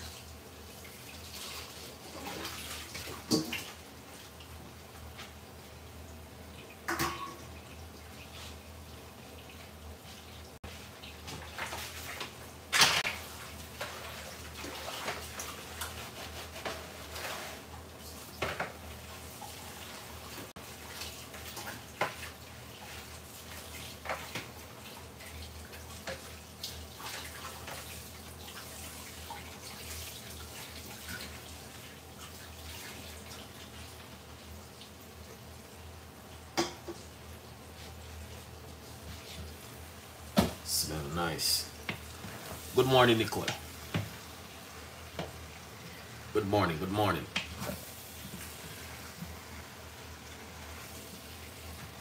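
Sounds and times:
pot cooking hiss: 36.5 - 52.0.

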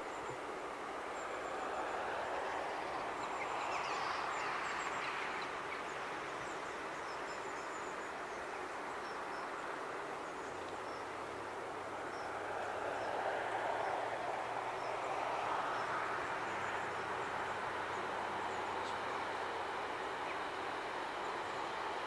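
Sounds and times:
distant rushing ambience: 7.8 - 22.0.

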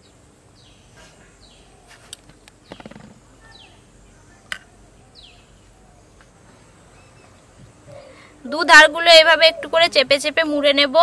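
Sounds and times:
rapid rattle: 2.6 - 3.3.

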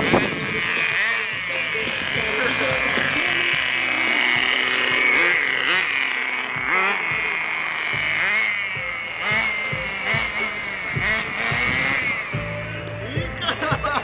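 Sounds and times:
toy car electric motor whining: 0.0 - 14.0.

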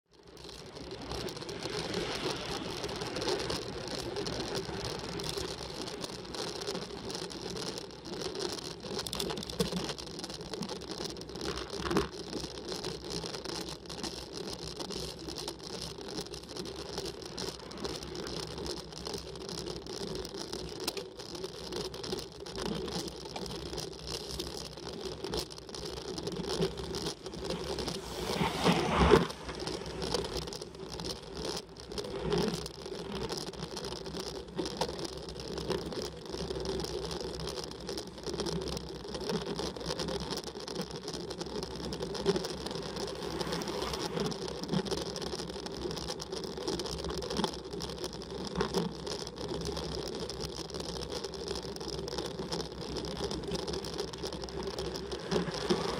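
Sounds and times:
bicycle drivetrain and tyre noise: 0.0 - 55.9
bicycle jolt: 0.3 - 36.8, 39.3 - 50.8, 51.4 - 55.9.

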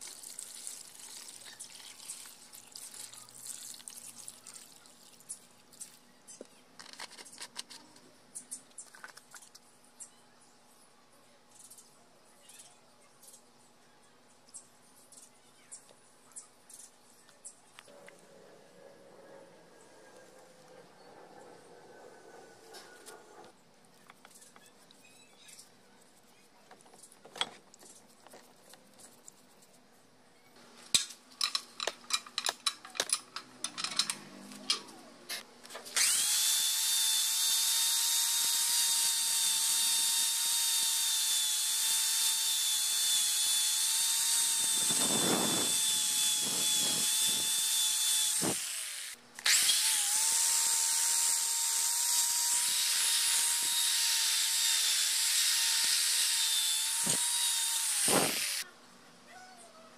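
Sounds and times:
power tool motor whine: 35.9 - 58.6.

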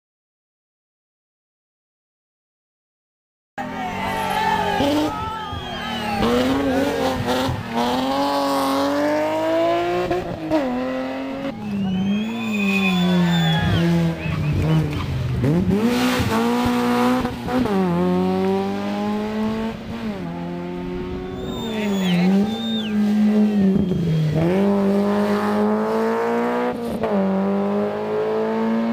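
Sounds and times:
rally car engines passing: 3.6 - 28.9
high squeal: 11.5 - 14.3, 21.2 - 24.3.

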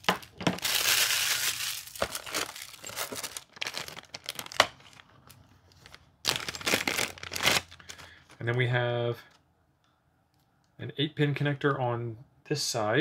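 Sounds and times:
plastic bag crinkling: 0.0 - 8.5.

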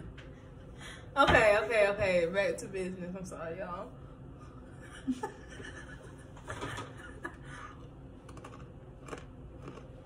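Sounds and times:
chewing crunchy cracker: 8.2 - 10.0.

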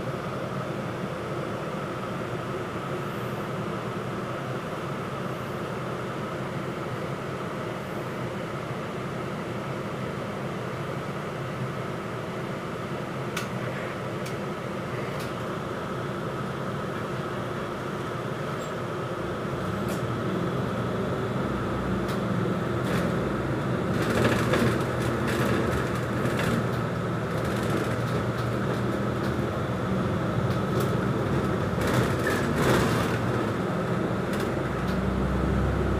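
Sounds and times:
bus engine and road noise: 0.0 - 35.9
rattles and clicks in cabin: 13.3 - 14.4, 15.0 - 15.4, 19.6 - 20.1, 22.0 - 29.7, 30.4 - 35.1.

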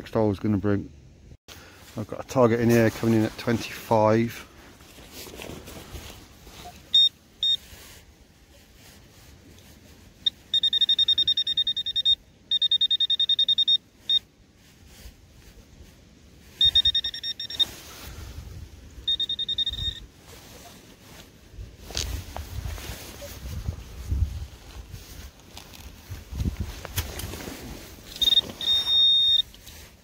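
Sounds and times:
rustling of digging: 1.6 - 11.3, 13.9 - 30.0
metal detector beeping: 6.6 - 7.6, 10.2 - 14.3, 16.6 - 17.9, 19.0 - 20.8, 28.1 - 29.6.

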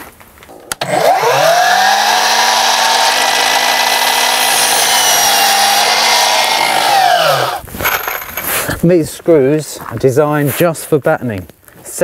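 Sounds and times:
mitre saw cutting timber: 0.7 - 7.6.

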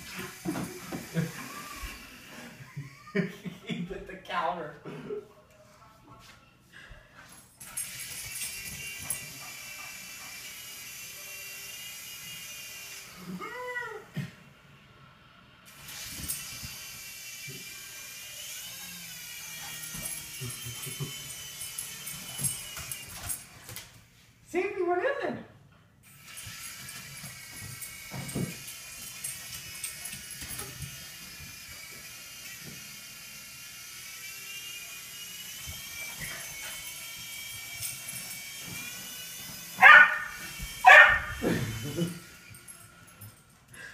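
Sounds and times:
toy helicopter motor whirring: 0.0 - 3.2, 7.6 - 13.5, 15.6 - 23.6, 26.0 - 43.9
dog barking loudly: 39.8 - 41.4.

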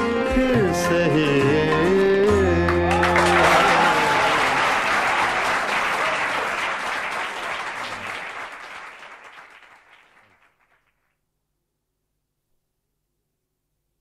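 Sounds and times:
audience applauding: 2.7 - 11.1.

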